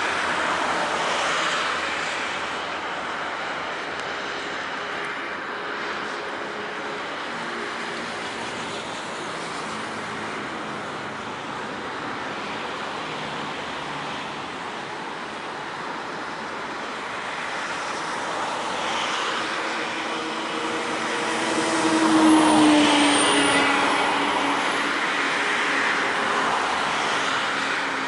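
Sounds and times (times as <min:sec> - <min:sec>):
jet engines roaring with falling whine: 0:00.0 - 0:28.0.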